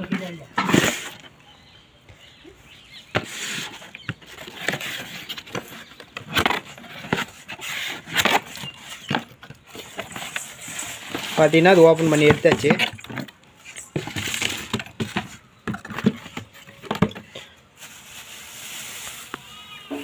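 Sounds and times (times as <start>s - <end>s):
cardboard rustling and scraping: 0.0s - 1.4s, 3.0s - 20.0s.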